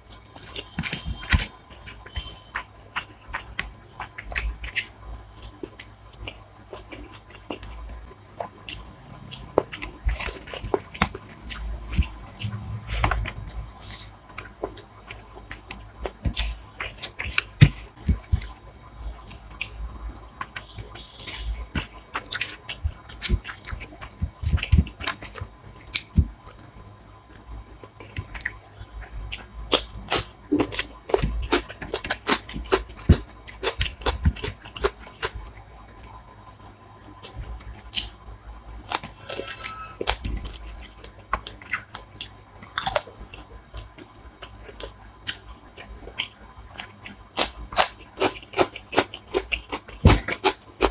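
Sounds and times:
person chewing and crunching: 0.0 - 18.6, 19.2 - 36.2, 37.0 - 38.2, 38.8 - 50.9
wet smacks and clicks: 38.8 - 50.9.

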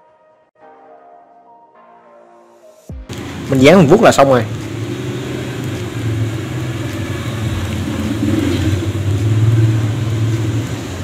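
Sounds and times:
low motor hum: 4.4 - 11.0.

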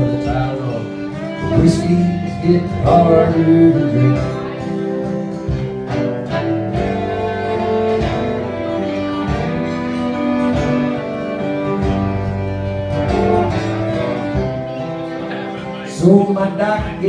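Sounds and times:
fiddle playing melody: 0.0 - 17.0
guitar strumming: 0.0 - 17.0.

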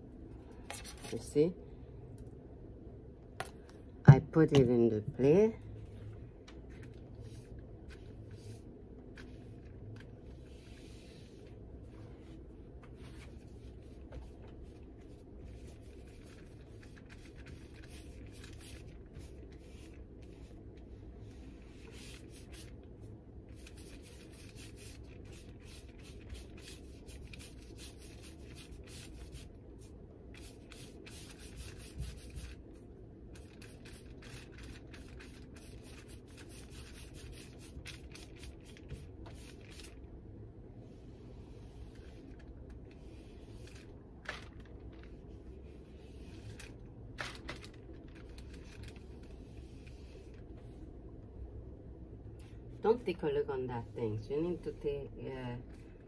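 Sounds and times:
paintbrush scrubbing on paper: 7.2 - 9.6, 10.2 - 12.4, 13.0 - 22.8, 23.5 - 32.7, 33.4 - 40.0.

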